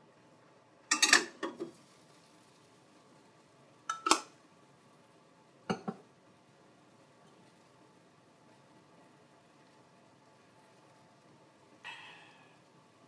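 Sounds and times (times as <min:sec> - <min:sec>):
dishware clinking and knocking: 0:00.9 - 0:01.7, 0:03.9 - 0:04.3, 0:05.7 - 0:06.0.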